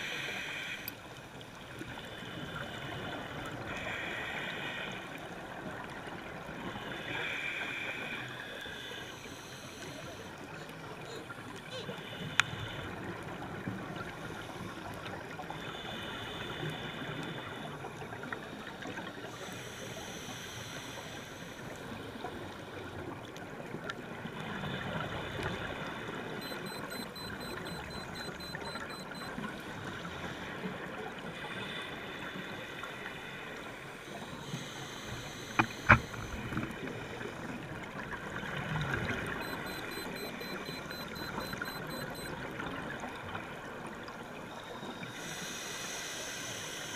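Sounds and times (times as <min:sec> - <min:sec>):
scuba regulator breathing: 0:03.7 - 0:05.2, 0:06.8 - 0:13.0, 0:19.3 - 0:22.4, 0:31.3 - 0:36.5, 0:44.9 - 0:46.9.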